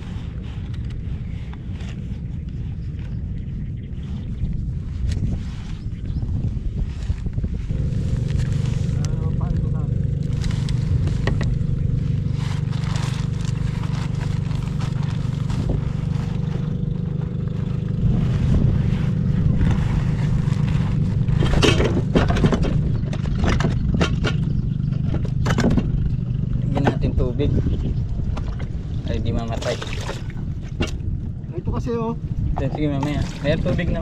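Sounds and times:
low motor drone: 0:00.0 - 0:34.0
sharp knocks and scrapes: 0:19.7 - 0:27.2.

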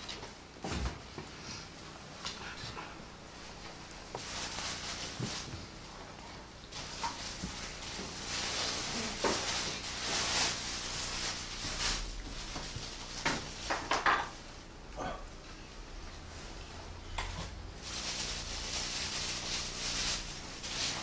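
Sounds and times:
rustling on wooden stage floor: 0:03.4 - 0:14.5, 0:17.8 - 0:21.0.

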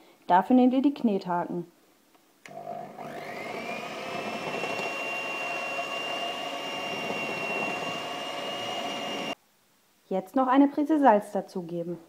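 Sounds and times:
hand mixer motor whine: 0:02.5 - 0:09.4.

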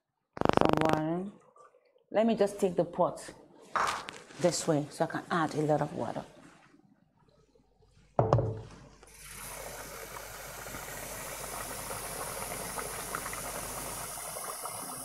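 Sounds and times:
knock: 0:08.2 - 0:08.7
tap water filling a pot: 0:09.1 - 0:15.0.

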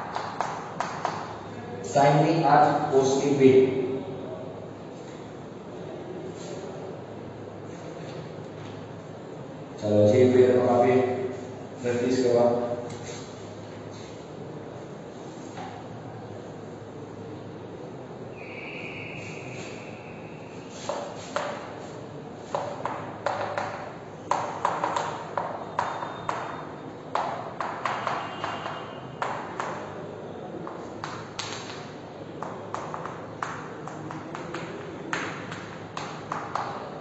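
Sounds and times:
chalk tapping and scratching: 0:00.0 - 0:01.3, 0:20.7 - 0:26.6, 0:27.2 - 0:29.9, 0:30.6 - 0:37.0.

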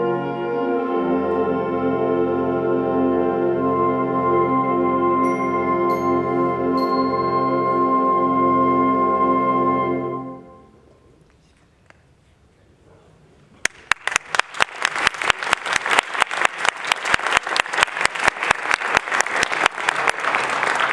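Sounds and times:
concert band sustained chord: 0:00.0 - 0:10.8
audience applause: 0:13.6 - 0:20.9.

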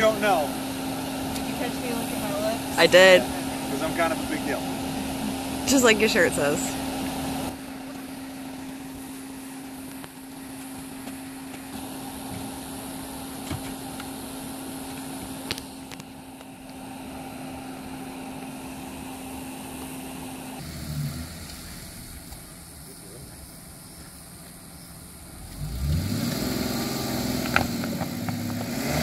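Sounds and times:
vehicle idling: 0:00.0 - 0:29.0
boards knocking against tyre: 0:27.4 - 0:28.6.

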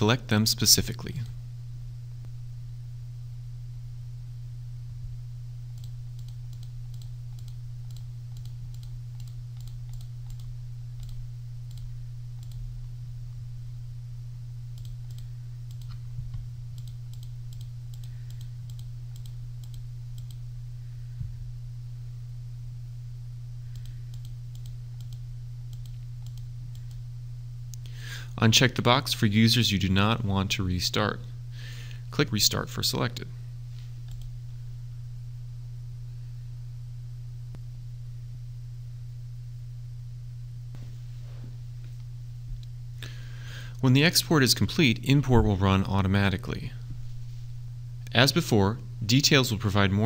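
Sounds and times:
steady low hum: 0:00.0 - 0:50.0
computer mouse clicking: 0:05.8 - 0:12.6, 0:16.8 - 0:20.4, 0:23.7 - 0:27.0, 0:34.1 - 0:34.3.

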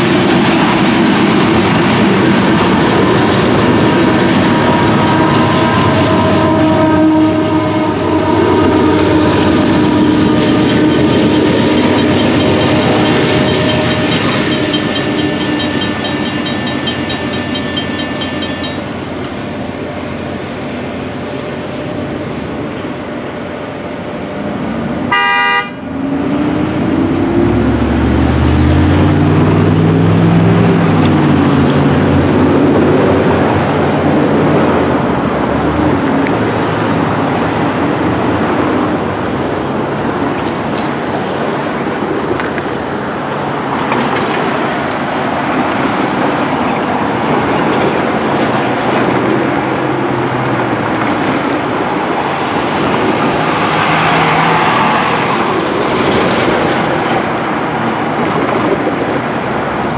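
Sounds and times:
road traffic noise: 0:00.0 - 0:59.9.

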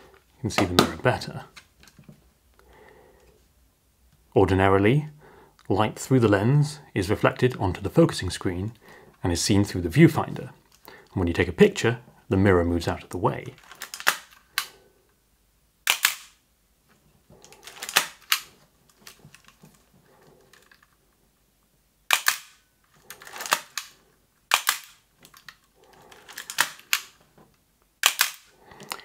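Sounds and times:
faint mechanical rustling: 0:16.8 - 0:21.7.

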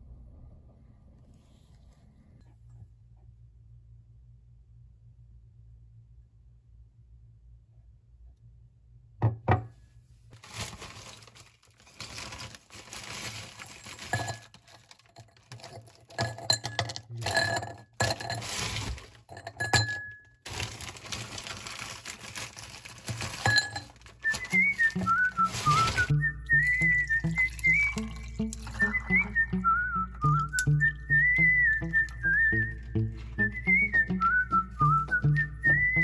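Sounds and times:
plastic bag crinkling: 0:10.4 - 0:16.4, 0:17.2 - 0:19.6, 0:20.4 - 0:26.1
ice cubes clinking into glass: 0:10.4 - 0:26.1, 0:26.7 - 0:29.4
person whistling a tune: 0:24.2 - 0:36.0.

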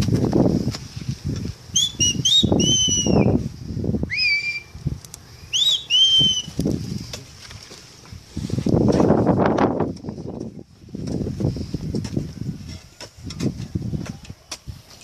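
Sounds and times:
wind buffeting microphone: 0:00.0 - 0:05.2, 0:05.8 - 0:15.0
whistled bird calls: 0:01.7 - 0:03.4, 0:04.1 - 0:06.6.

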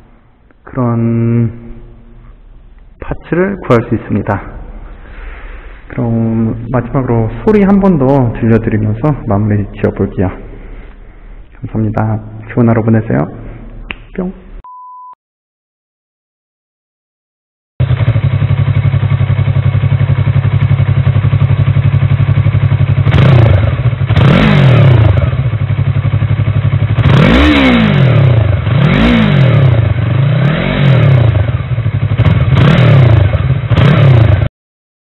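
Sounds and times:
motorcycle engine idling: 0:17.8 - 0:24.3, 0:25.0 - 0:27.2, 0:31.4 - 0:32.6
motorcycle engine revving: 0:17.8 - 0:34.5.

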